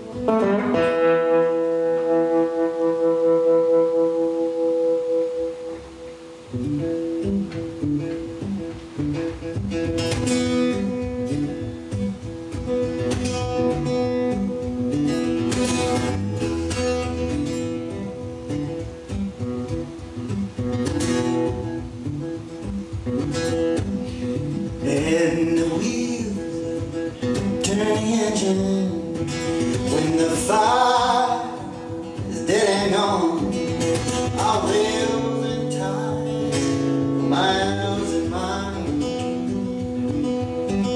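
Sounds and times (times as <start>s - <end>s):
acoustic guitar: 0.0s - 40.9s
man singing: 24.6s - 39.5s.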